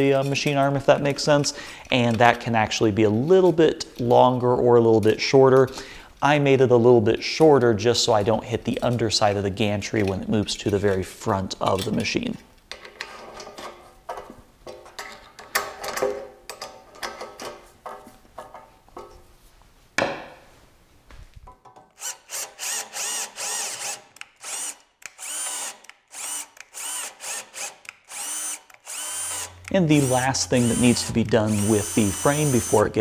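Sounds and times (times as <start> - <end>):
cordless drill motor whining: 22.0 - 33.0.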